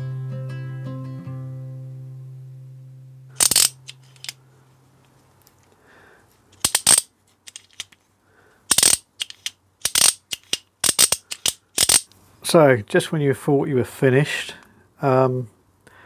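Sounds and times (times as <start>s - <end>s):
metal parts clinking on workbench: 3.4s - 4.4s, 6.6s - 8.0s, 8.7s - 12.1s.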